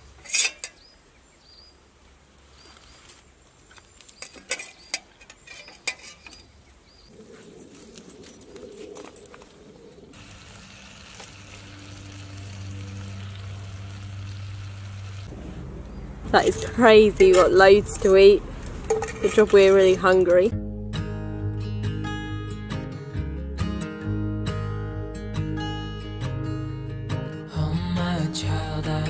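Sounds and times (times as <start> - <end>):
metal utensils clinking on plates: 4.2 - 6.4, 18.9 - 20.3
stew sizzling in a pot: 10.2 - 15.3.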